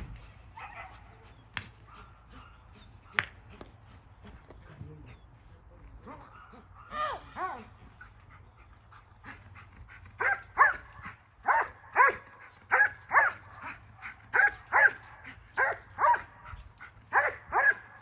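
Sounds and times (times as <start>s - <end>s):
dog barking: 0.6s - 1.1s, 6.1s - 7.6s, 10.2s - 13.5s, 14.3s - 16.3s, 17.1s - 17.9s.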